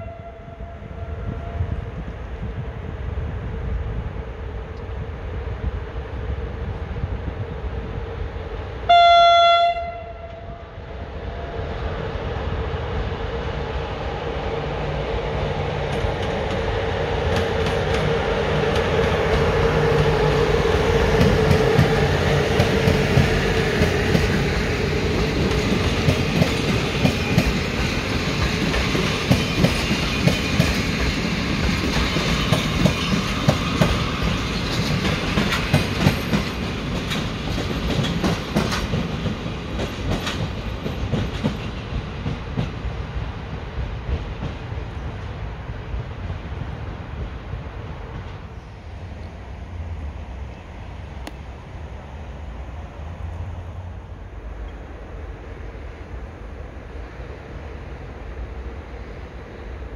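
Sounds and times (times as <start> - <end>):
train passing by: 0.0 - 59.9
wheels clicking over rail joints: 21.1 - 42.9.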